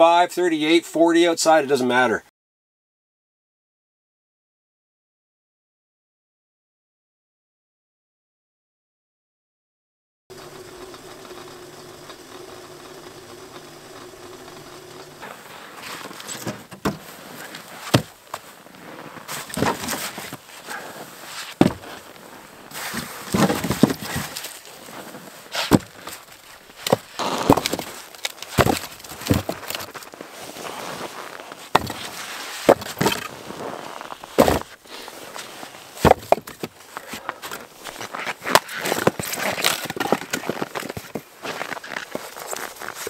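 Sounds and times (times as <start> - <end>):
steady hum: 10.3 - 16.4
firewood logs clattering: 10.3 - 34.8, 35.4 - 43.0.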